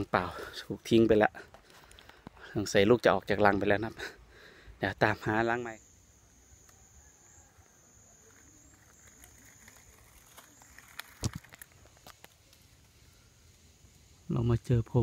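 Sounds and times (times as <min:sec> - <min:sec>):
soft crackles: 0:00.0 - 0:02.8, 0:06.5 - 0:15.0
faint high-pitched insect buzz: 0:00.0 - 0:15.0.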